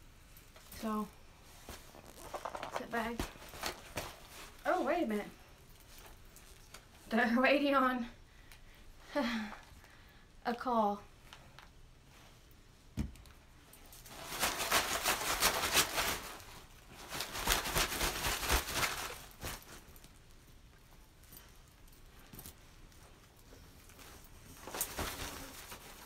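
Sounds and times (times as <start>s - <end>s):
deck of cards shuffling: 1.6s - 4.6s.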